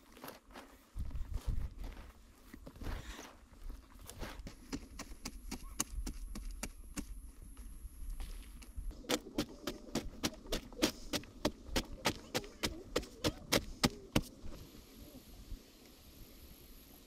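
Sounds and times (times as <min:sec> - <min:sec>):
digging tool striking hard clay: 0:09.0 - 0:14.3
faint steady hiss: 0:14.0 - 0:17.0.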